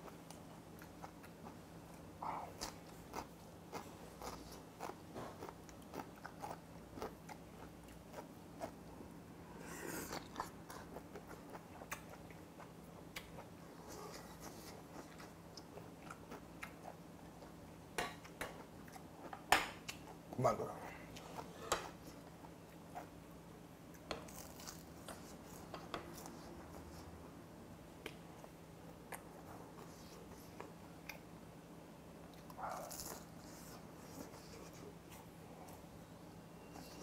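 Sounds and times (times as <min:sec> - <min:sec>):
person chewing noodles: 0:00.0 - 0:08.9, 0:09.5 - 0:17.6.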